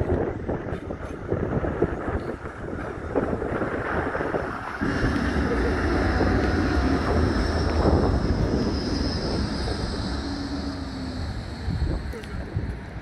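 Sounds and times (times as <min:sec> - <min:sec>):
tram wheels rumbling on rails: 0:00.0 - 0:13.0
faint high whine: 0:01.7 - 0:13.0.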